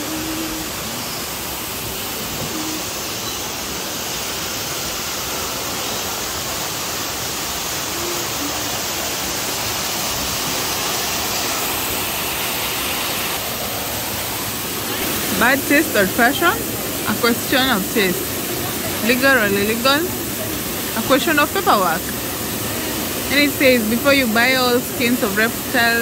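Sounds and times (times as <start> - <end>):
falling water rushing: 0.0 - 26.0.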